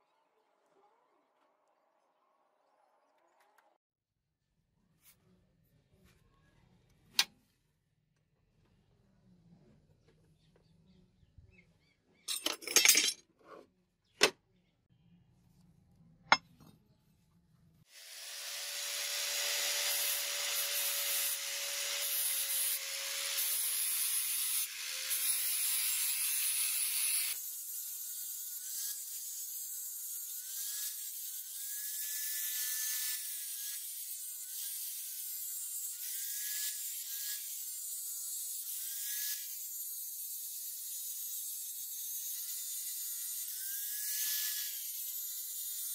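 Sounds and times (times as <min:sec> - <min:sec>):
angle grinder grinding steel: 0:17.9 - 0:45.9.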